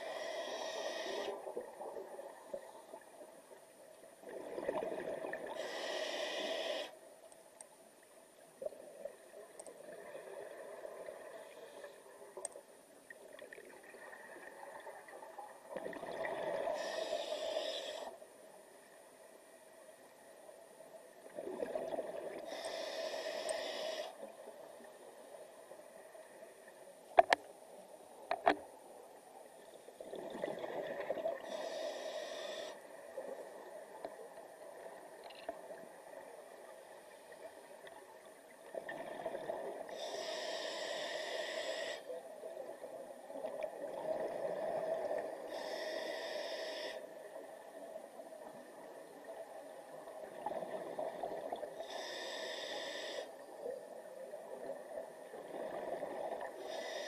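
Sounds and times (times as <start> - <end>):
scuba regulator breathing underwater: 0.0 - 1.5, 5.4 - 7.0, 16.3 - 18.2, 22.4 - 24.3, 31.4 - 32.8, 39.6 - 42.1, 44.4 - 47.1, 51.8 - 53.4, 55.9 - 57.0
exhaled bubbles gurgling: 4.2 - 5.6, 21.3 - 22.6.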